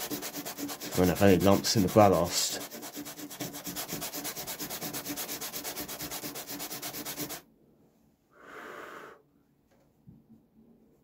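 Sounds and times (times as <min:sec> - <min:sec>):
fast back-and-forth sanding: 0:00.0 - 0:07.4.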